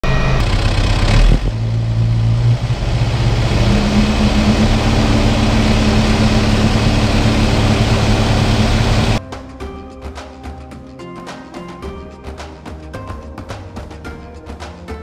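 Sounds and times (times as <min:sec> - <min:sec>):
tractor diesel engine running: 0:00.0 - 0:09.2.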